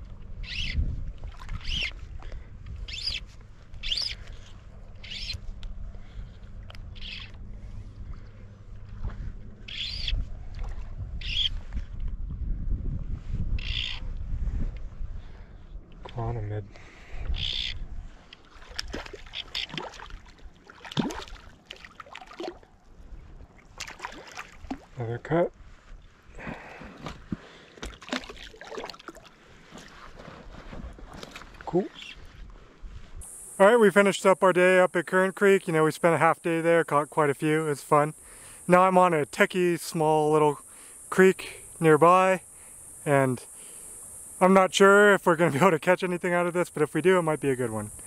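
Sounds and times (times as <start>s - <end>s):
rumble of wind and water: 0.0s - 34.8s
water plops and drips: 18.4s - 22.7s, 23.7s - 24.9s, 27.8s - 29.3s
fish splashing in water: 18.4s - 22.8s, 23.6s - 24.9s, 27.7s - 30.0s.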